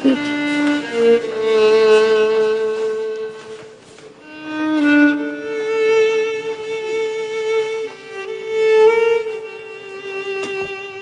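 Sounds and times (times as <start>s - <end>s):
violin playing long held notes: 0.0s - 11.0s.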